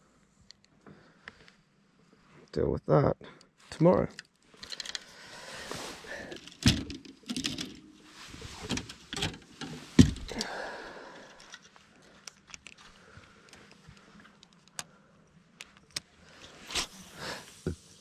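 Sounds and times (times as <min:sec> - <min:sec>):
clothing rustling: 0:04.4 - 0:13.9.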